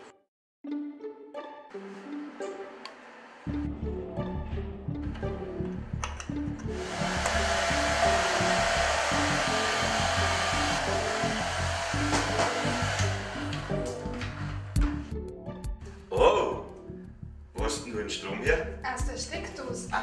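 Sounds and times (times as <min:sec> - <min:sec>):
hair dryer blowing: 0:01.9 - 0:03.5, 0:06.6 - 0:14.9
background music with bassline: 0:03.5 - 0:20.0.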